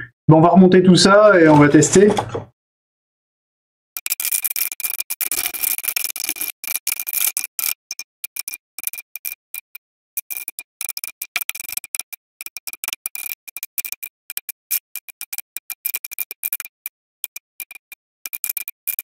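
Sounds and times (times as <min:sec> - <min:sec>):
plastic connectors clicking and rattling: 0:04.0 - 0:19.0.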